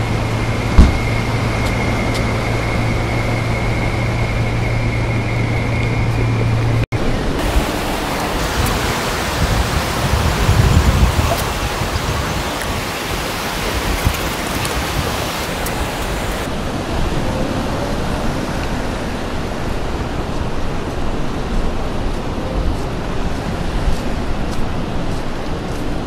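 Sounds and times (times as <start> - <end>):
wind blowing across microphone: 0.0 - 26.0
ocean surf breaking: 7.0 - 26.0.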